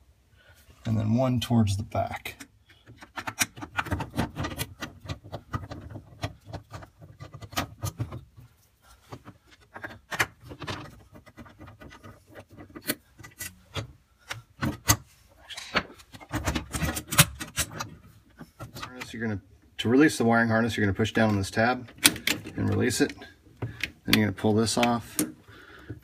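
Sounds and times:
nut driver clicking and scraping: 2.4 - 8.5, 9.1 - 19.2, 21.2 - 26.0
handling noise on plastic: 2.4 - 19.4.

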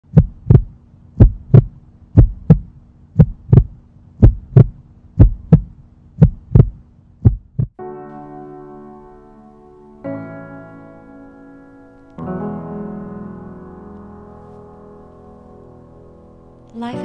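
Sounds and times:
heartbeat thumps: 0.0 - 7.8
low steady hum: 0.0 - 7.8
held musical chord: 7.8 - 17.0.

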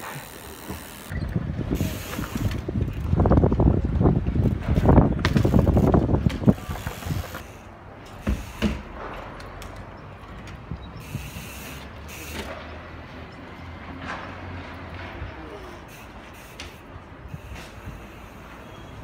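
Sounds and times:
bike knocking against stone wall: 4.7 - 7.5, 8.2 - 9.2.

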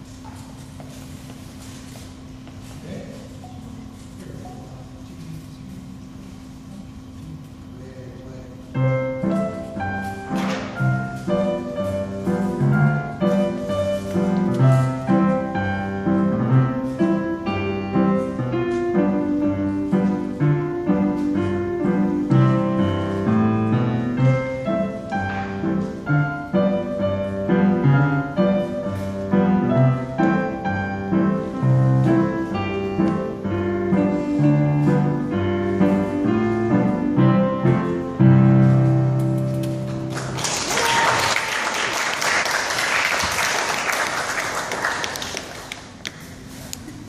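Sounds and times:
piano piece: 0.0 - 47.0
audience applause: 40.1 - 46.0.

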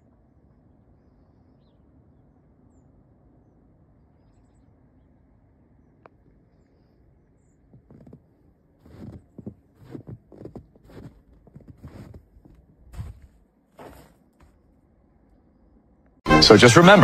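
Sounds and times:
footsteps in deep snow: 7.7 - 14.7.

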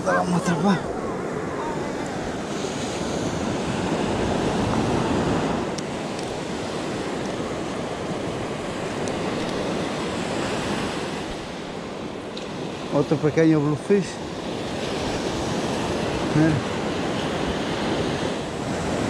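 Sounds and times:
wind rumbling on microphone: 0.0 - 13.0
ocean surf on sandy beach: 0.0 - 19.0.

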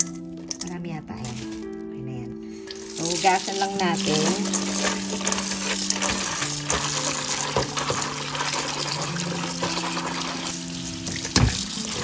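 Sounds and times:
background music of held notes: 0.0 - 12.0
tap water running into metal bowl: 2.7 - 12.0.

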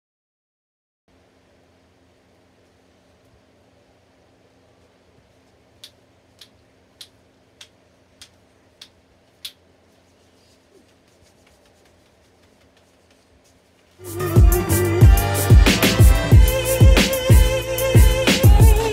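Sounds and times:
faint sharp clicks: 5.8 - 9.6.

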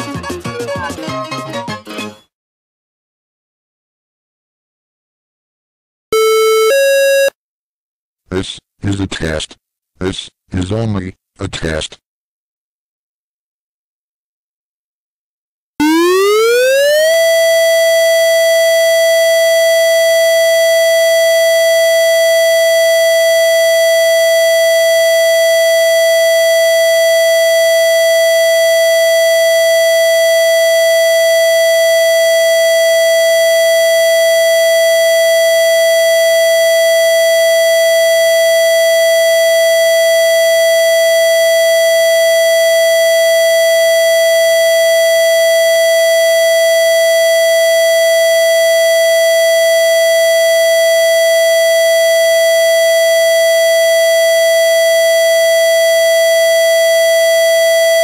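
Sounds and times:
siren steady tone: 6.2 - 7.4, 15.8 - 58.0.

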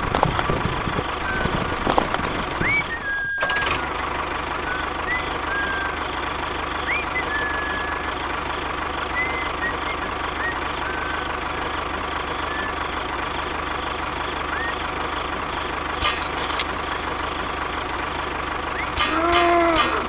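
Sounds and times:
tractor engine chugging: 0.0 - 20.0
short high chirps: 16.0 - 19.5.

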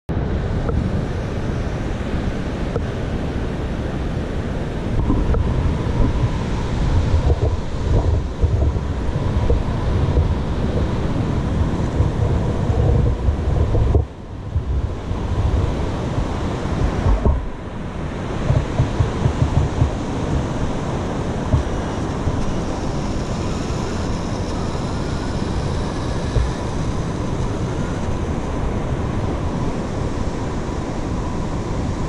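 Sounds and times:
wind buffeting microphone: 0.1 - 32.0
ocean surf breaking: 0.2 - 32.0.

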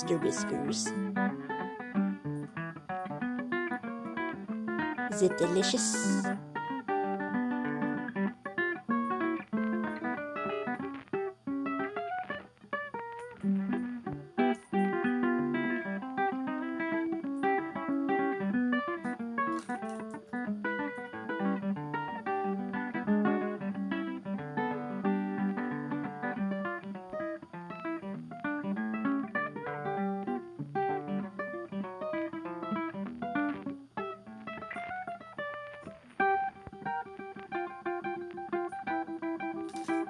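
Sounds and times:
acoustic guitar plucking and strumming: 0.0 - 40.0.

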